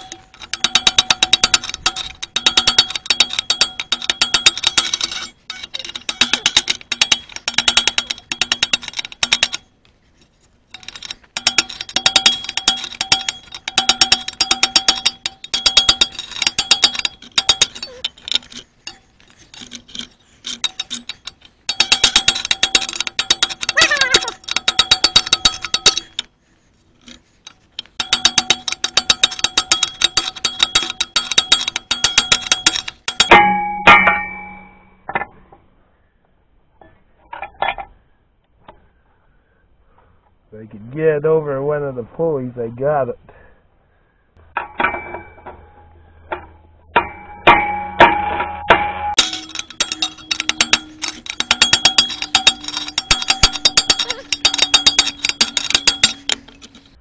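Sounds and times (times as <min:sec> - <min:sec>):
ratchet wrench clicking: 0:00.0 - 0:09.6, 0:10.7 - 0:26.3, 0:27.0 - 0:33.3, 0:49.2 - 0:57.0.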